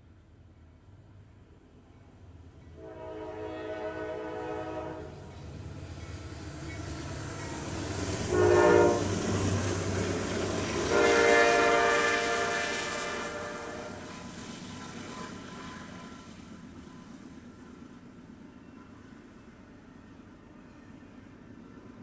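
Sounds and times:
train engines and rolling cars rumble: 0.0s - 22.0s
train horn blasts: 2.8s - 5.3s, 8.2s - 9.7s, 10.5s - 14.2s.

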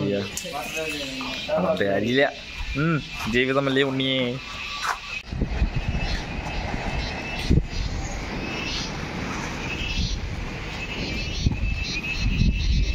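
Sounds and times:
wind buffeting microphone: 5.0s - 12.9s.

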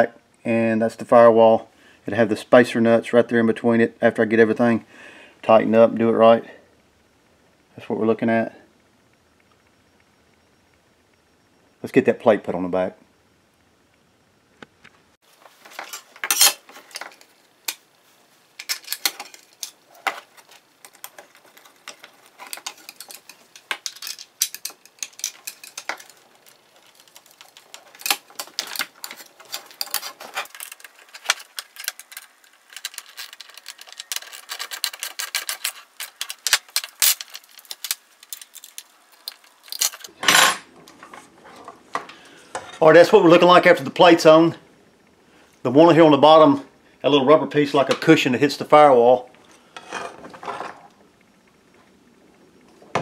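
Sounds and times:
metal hardware clinking: 15.7s - 17.8s, 18.6s - 40.6s.

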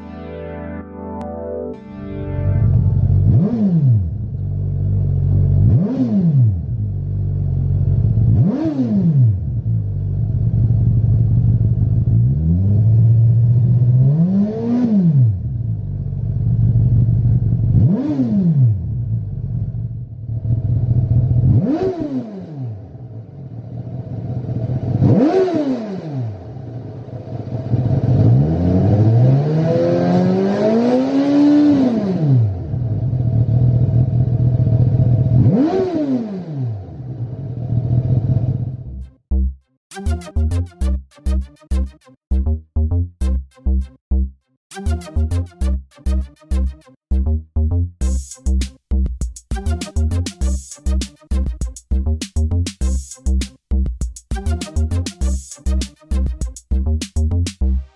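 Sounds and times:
motorcycle engine revving: 2.8s - 39.0s.

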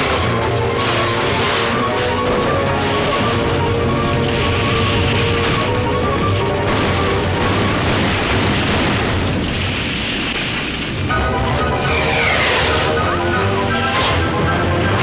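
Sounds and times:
cartoon soundtrack music: 0.0s - 8.4s, 11.1s - 15.0s
noisy train rumble: 0.0s - 15.0s.

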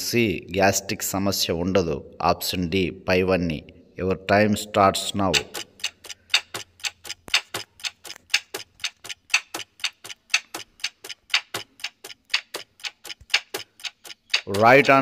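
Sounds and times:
clock ticking: 5.0s - 15.0s.

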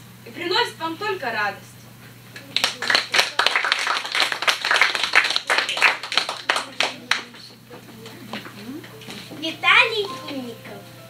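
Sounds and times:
small audience clapping: 2.3s - 8.6s.

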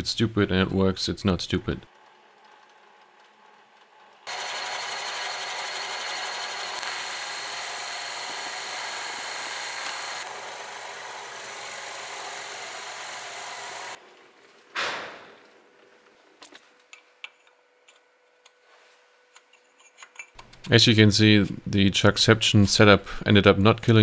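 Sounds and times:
metal lathe machining whir: 4.3s - 14.0s.

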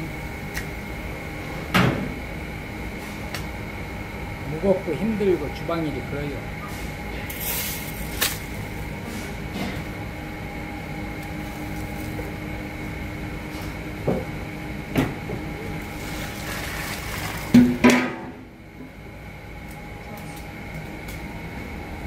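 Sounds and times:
steady rumble with faint hum: 0.0s - 22.0s
water pouring into colander: 15.9s - 17.8s.

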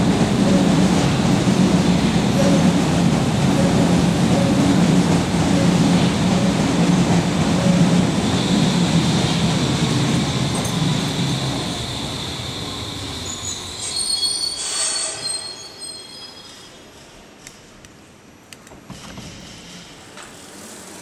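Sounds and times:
train rumbling into station: 0.0s - 21.0s
high squeal of train brakes: 10.4s - 17.4s.

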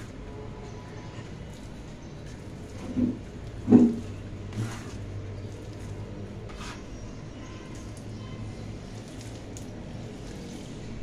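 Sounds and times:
dough scraper scraping: 3.7s - 5.1s, 6.5s - 6.9s.

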